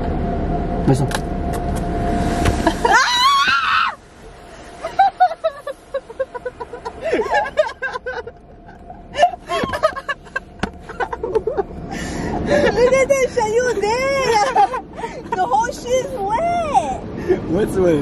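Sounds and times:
woman screaming: 2.8 - 4.0.

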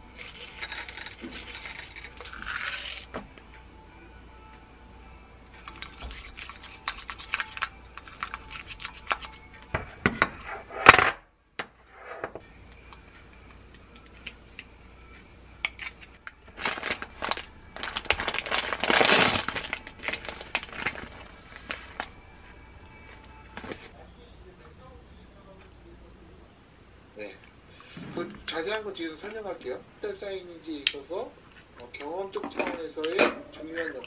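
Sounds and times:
metal scoop clinking: 0.2 - 3.1.

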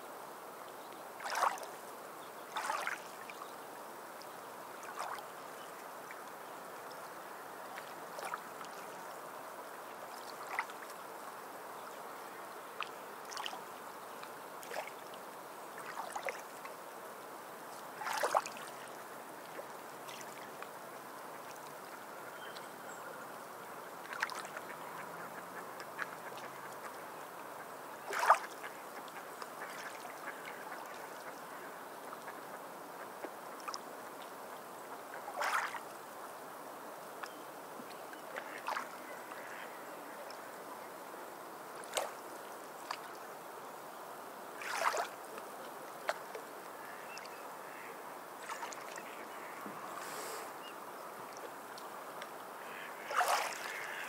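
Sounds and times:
water lapping and sloshing: 1.2 - 1.8, 2.5 - 3.5, 4.8 - 11.4, 12.8 - 16.8, 17.7 - 22.7, 23.9 - 36.4, 37.2 - 40.6, 41.7 - 43.3, 44.5 - 50.0, 51.2 - 54.0
water splashes: 1.2 - 1.8, 2.5 - 3.5, 4.7 - 6.4, 7.0 - 11.3, 12.8 - 16.8, 17.7 - 22.7, 24.0 - 27.0, 28.0 - 34.0, 35.1 - 36.1, 38.1 - 40.6, 41.7 - 43.3, 44.5 - 50.6, 51.2 - 54.0.

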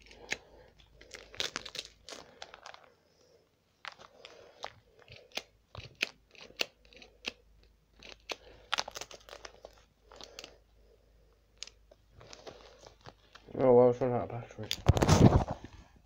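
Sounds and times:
microphone handling clicks and rustling: 14.7 - 15.8.

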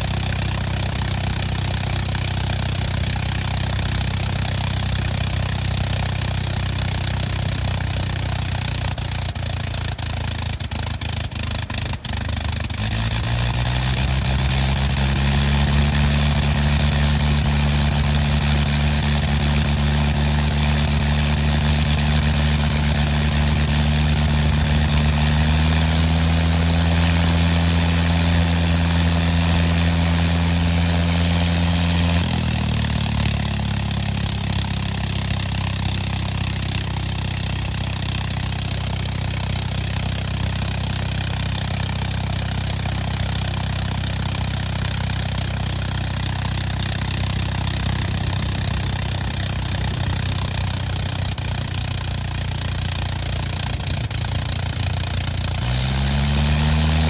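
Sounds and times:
rotary aircraft engine running: 0.0 - 57.0.

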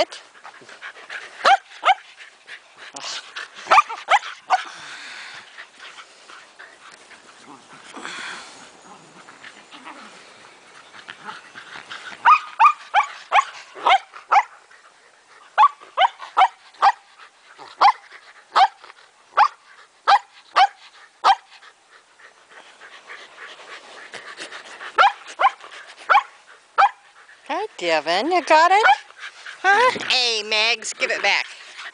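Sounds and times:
dog barking high and sharp: 20.1 - 21.4.

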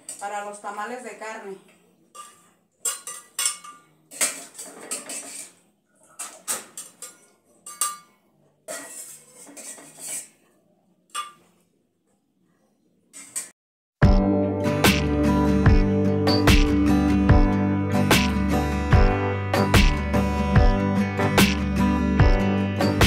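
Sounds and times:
metal ladle scraping pot: 2.1 - 11.4.

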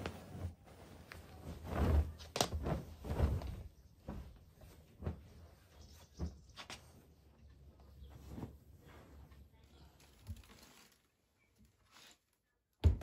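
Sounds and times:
fabric rustling: 0.0 - 12.4.

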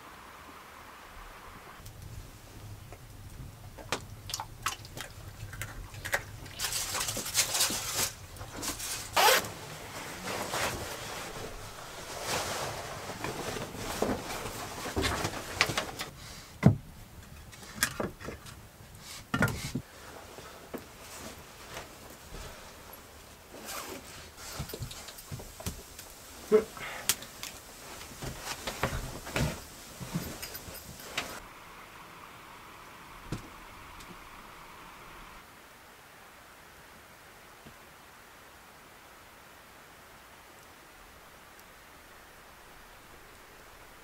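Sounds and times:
objects handled and scraped: 5.4 - 16.2, 17.3 - 31.5
clothing rustling: 6.2 - 16.1, 19.1 - 31.5.

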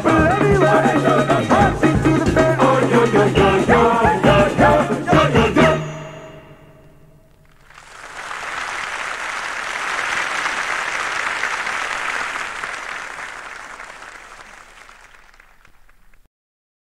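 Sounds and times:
audience applauding: 7.4 - 16.3.

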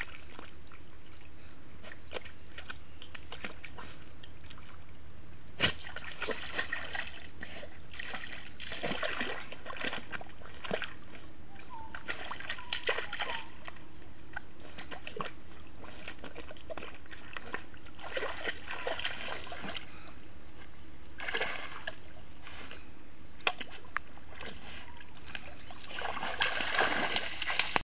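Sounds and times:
dog splashing in water: 5.6 - 11.1, 11.9 - 19.9, 21.2 - 22.0, 23.5 - 27.8.

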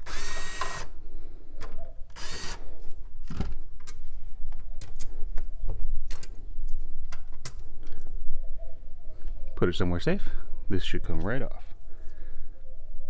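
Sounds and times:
cordless drill spinning: 0.0 - 0.9, 2.2 - 2.6.

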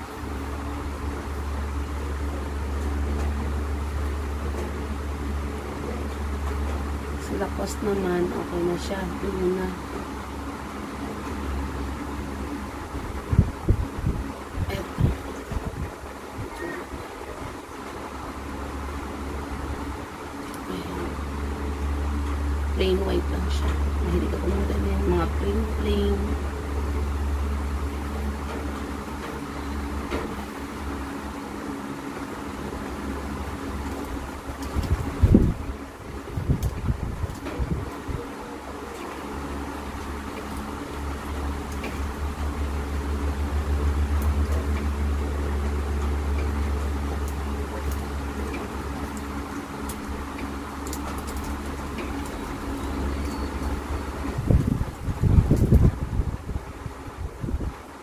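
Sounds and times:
low hum: 0.0 - 58.0.

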